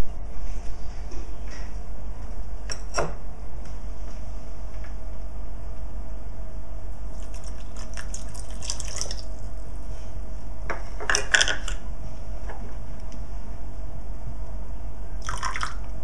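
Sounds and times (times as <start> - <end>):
water splashing into saucepan: 7.3 - 9.3.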